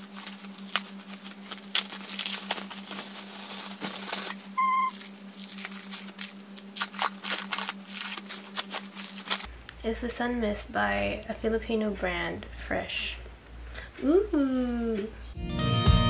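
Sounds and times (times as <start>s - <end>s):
bubble wrap and plastic crinkling: 0.0s - 9.5s
steady low hum: 0.0s - 15.4s
short high squeak: 4.6s - 5.0s.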